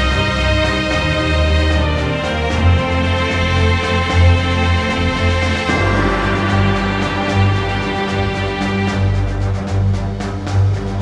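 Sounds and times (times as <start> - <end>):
sustained chords over bass line: 5.3 - 9.9.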